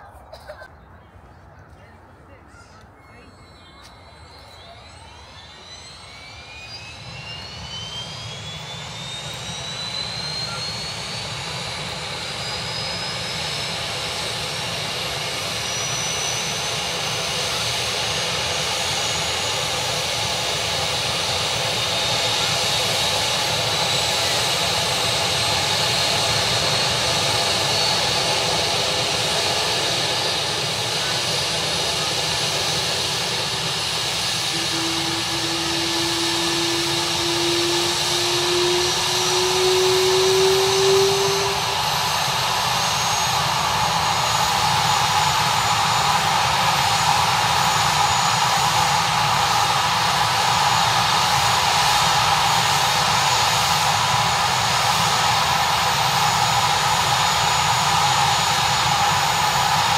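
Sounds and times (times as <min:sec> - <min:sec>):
helicopter turbine whine: 0:00.0 - 0:59.9
tone climbing in pitch: 0:34.4 - 0:42.0.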